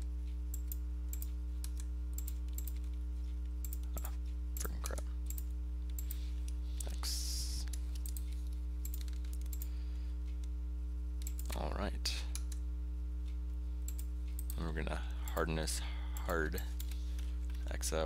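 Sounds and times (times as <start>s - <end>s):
low electrical hum: 0.0s - 18.0s
keyboard and mouse clicking: 0.5s - 3.0s, 3.6s - 6.2s, 7.6s - 9.7s, 11.2s - 11.7s.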